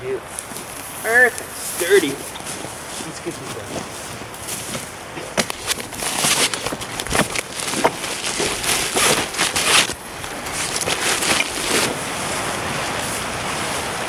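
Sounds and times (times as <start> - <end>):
steady hiss: 0.0 - 14.0
plastic tarp rustling and crinkling: 0.4 - 14.0.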